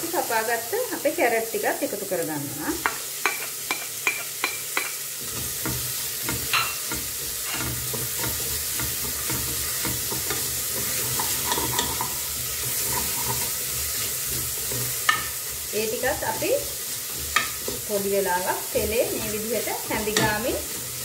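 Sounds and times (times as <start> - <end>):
vegetables sizzling in hot oil: 0.0 - 21.0
spoon tapping a bowl: 2.8 - 5.0, 6.3 - 7.7
spoon scraping a pot: 2.8 - 15.7.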